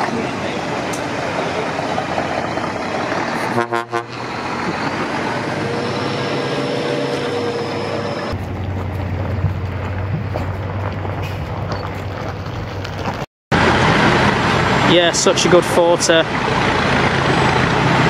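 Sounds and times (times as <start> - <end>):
outdoor background noise: 0.0 - 18.0
faint horn-like tone: 3.5 - 4.2.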